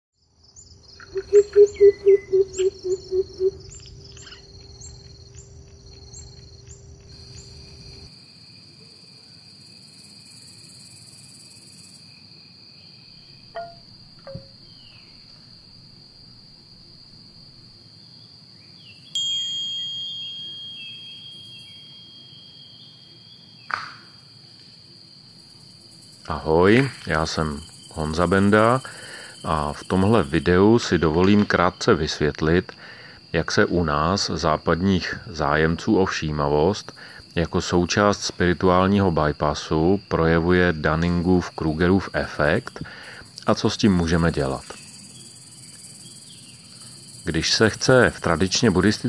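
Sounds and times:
crickets and insects chirping: 0.2 - 49.0
bird chirps: 0.6 - 7.7, 12.8 - 15.3, 18.6 - 23.9
bell-like chime: 13.6 - 14.5, 19.2 - 23.0.

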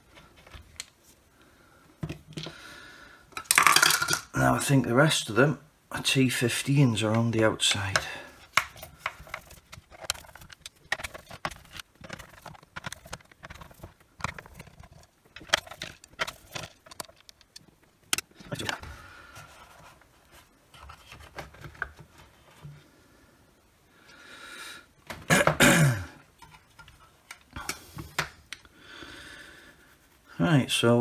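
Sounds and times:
handling plastic housing: 7.0 - 22.7.

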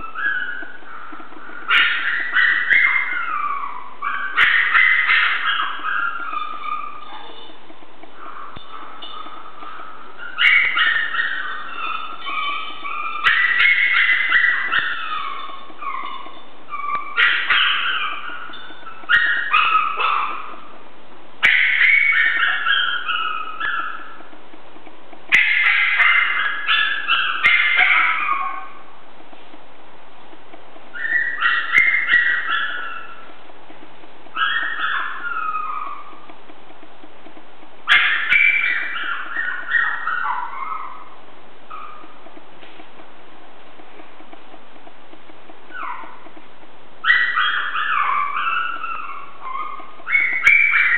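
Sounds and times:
puppies yipping and whining: 0.0 - 20.8, 21.4 - 24.4, 25.3 - 29.0, 30.9 - 33.4, 34.3 - 36.3, 37.8 - 42.3, 45.6 - 46.4, 47.0 - 50.9
sharp clicks: 29.2 - 40.1, 41.7 - 48.0.

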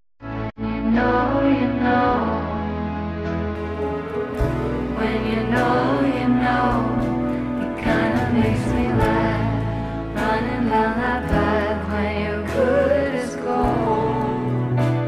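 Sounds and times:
pop song with singing: 0.6 - 3.0, 4.4 - 15.0.

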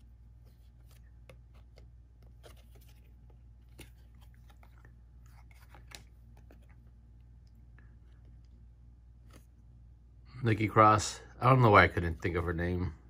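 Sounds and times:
steady low hum: 0.0 - 13.0
trading cards clicking and rustling: 0.4 - 6.9.

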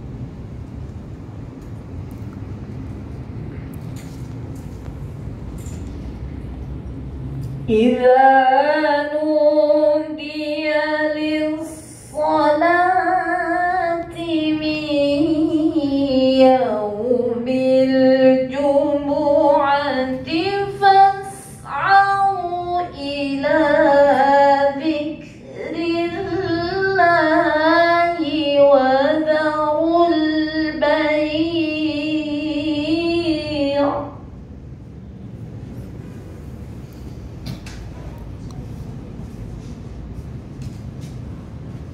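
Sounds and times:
woman reciting in melodic chant: 7.6 - 34.3.

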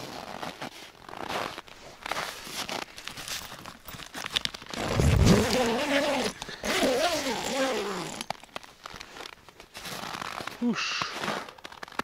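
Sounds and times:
tent fabric rustling and zipper: 0.0 - 12.0.

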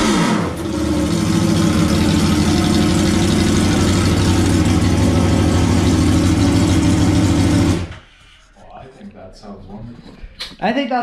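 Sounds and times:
motorcycle engine idling: 0.6 - 7.8.

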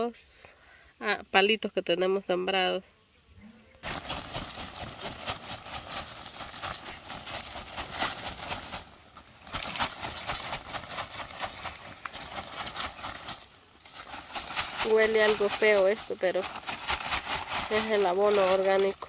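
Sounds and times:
compost pouring onto soil: 3.8 - 19.0.

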